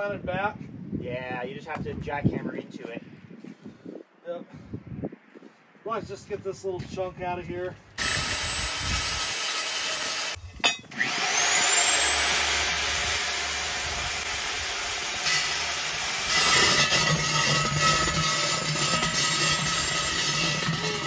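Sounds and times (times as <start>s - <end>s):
core drill whining: 8.0s - 21.0s.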